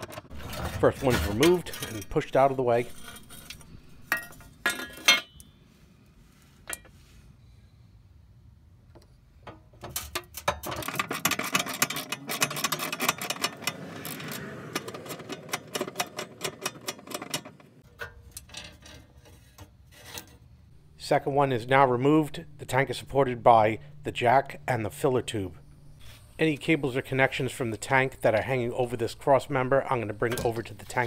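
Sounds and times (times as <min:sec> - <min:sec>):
metal clanks: 0:00.0 - 0:05.5, 0:09.4 - 0:20.5, 0:30.0 - 0:31.0
socket wrench ratcheting: 0:10.2 - 0:17.6.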